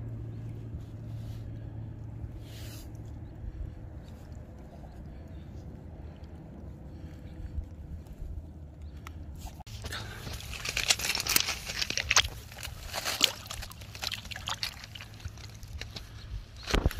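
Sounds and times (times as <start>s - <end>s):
fish splashing in shallow water: 9.7s - 16.9s.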